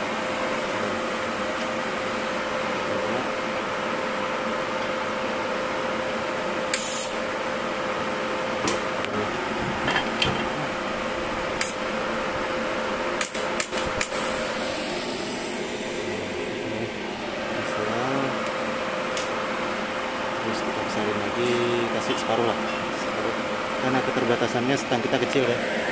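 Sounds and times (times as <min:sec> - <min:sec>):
welder cooling fan humming: 0:00.0 - 0:25.9
short hiss: 0:06.7 - 0:07.2.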